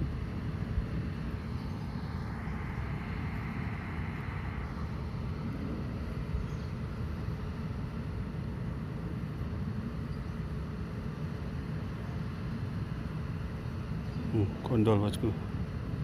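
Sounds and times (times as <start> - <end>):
distant vehicle traffic: 0.0 - 10.8.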